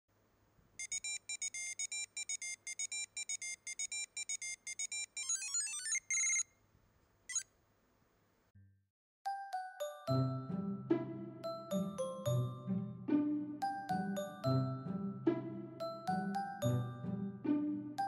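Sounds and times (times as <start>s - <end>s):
electronic jingle beeps: 0.8s - 6.5s
chimes: 13.6s - 14.9s, 15.8s - 17.3s.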